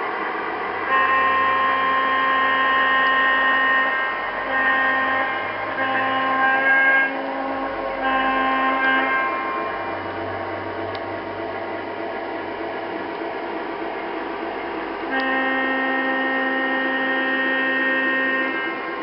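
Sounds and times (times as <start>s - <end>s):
model train rolling on track: 0.0s - 19.0s
locomotive horn blast: 0.8s - 10.4s, 15.1s - 19.0s.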